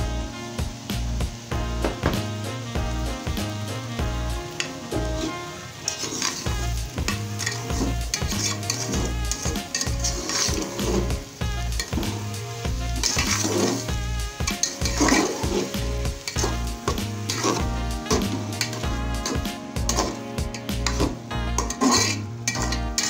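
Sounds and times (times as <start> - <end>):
music with bass beat: 0.0 - 5.2, 6.5 - 23.0
frying sizzle: 0.0 - 23.0
metal spoon scraping pot: 4.6 - 11.2, 13.0 - 23.0.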